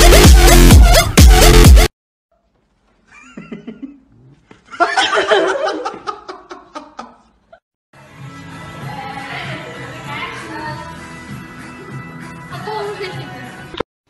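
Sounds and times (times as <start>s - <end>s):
person laughing: 3.1s - 7.6s.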